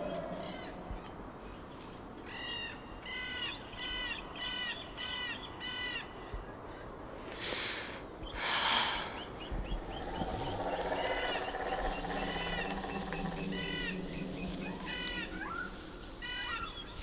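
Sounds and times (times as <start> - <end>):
low steady drone: 0.0 - 1.7, 8.4 - 16.7.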